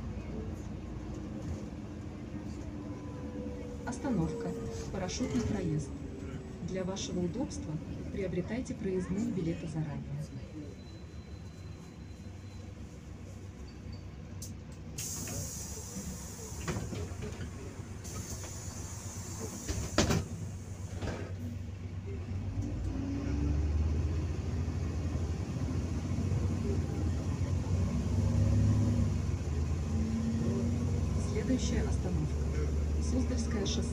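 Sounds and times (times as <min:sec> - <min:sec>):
bus engine rumble: 0:00.0 - 0:33.9
air hiss of bus doors: 0:14.9 - 0:21.5.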